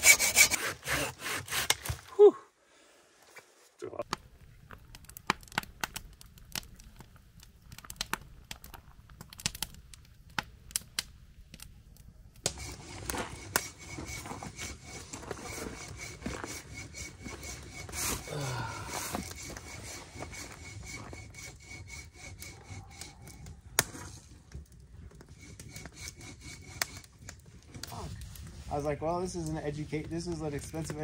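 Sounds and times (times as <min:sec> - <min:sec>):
hand saw cutting wood: 0:00.0 - 0:02.1, 0:12.4 - 0:24.2, 0:25.2 - 0:28.0
wood snapping and clicking: 0:04.0 - 0:11.7.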